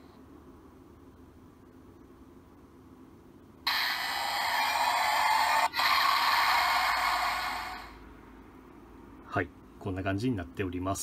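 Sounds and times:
toy electronic hissing effect: 3.7 - 8.0.

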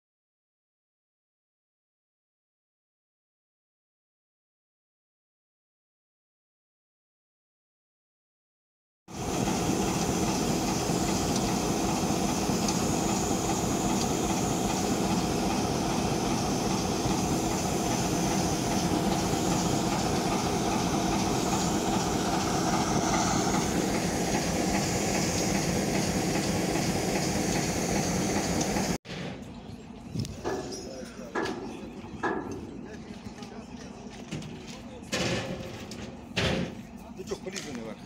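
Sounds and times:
diesel engine droning: 9.2 - 30.0.

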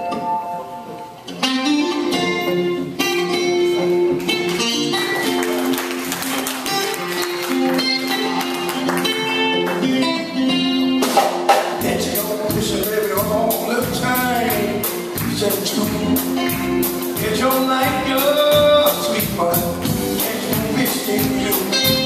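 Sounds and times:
acoustic guitar picking: 0.0 - 22.0
drums: 0.0 - 22.0
person singing: 11.7 - 22.0
electric bass: 11.8 - 22.0.

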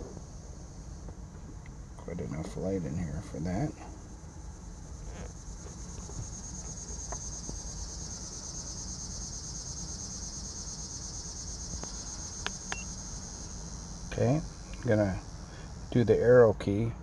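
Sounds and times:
insects chirping: 0.0 - 17.0
low steady hum: 0.0 - 17.0.

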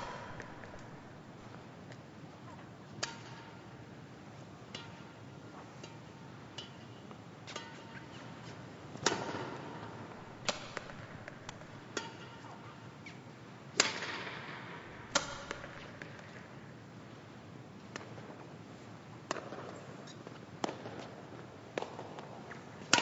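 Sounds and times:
racket hitting shuttlecock: 0.0 - 1.5, 2.9 - 3.8, 4.7 - 16.5, 19.3 - 19.8, 20.6 - 23.0.

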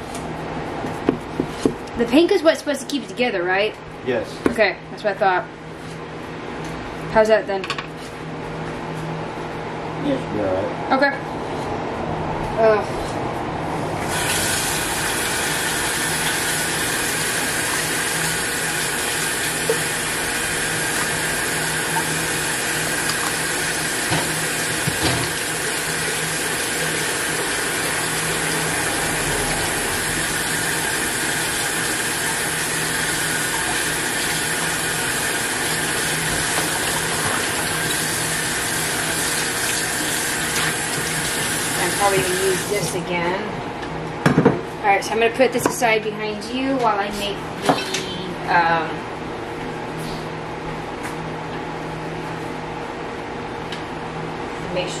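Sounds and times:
tap water running into sink: 14.0 - 28.7, 30.3 - 42.7.

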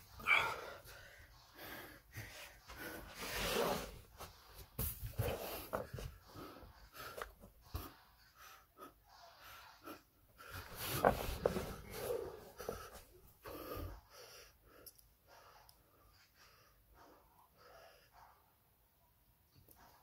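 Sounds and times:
man breathing hard: 0.1 - 3.4, 9.9 - 14.8.

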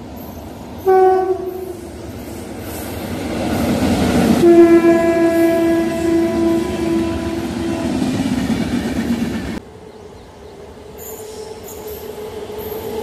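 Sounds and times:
train rumbling past: 0.0 - 13.0
train horn blasts: 0.8 - 1.9, 4.4 - 8.2.

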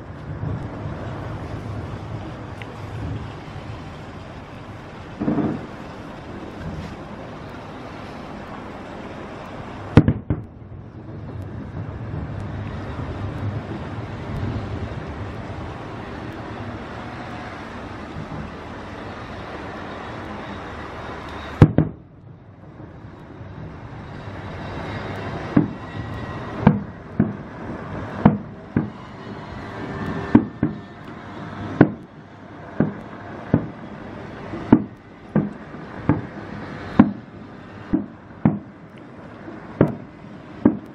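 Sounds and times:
low rumble: 0.0 - 40.9
fireworks bangs: 5.1 - 5.9, 9.9 - 18.6, 21.4 - 22.0, 22.8 - 40.9.

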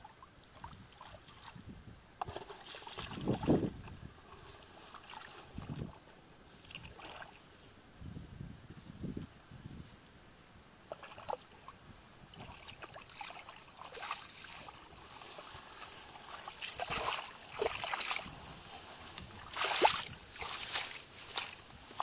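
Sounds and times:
footsteps wading through muddy water: 2.3 - 7.4, 12.3 - 22.0
plants swishing against legs: 13.8 - 22.0.

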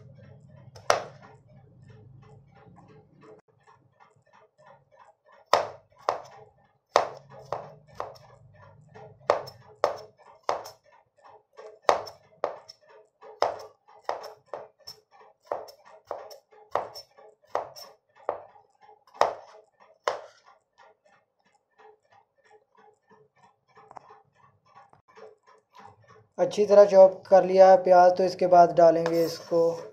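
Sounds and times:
knife chopping on wooden board: 0.8 - 1.4, 5.4 - 8.4, 9.3 - 10.8, 11.6 - 20.6.

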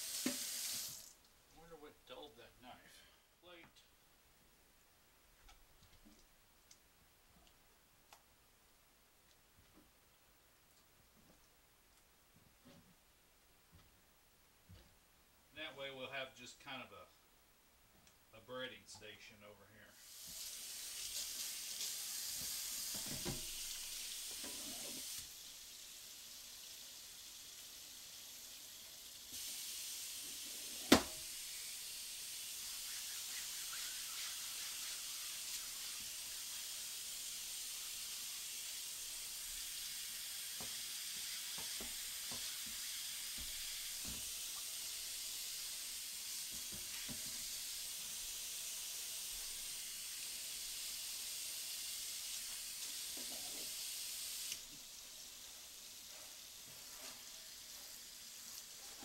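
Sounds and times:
cutting board being scrubbed: 32.6 - 36.9.

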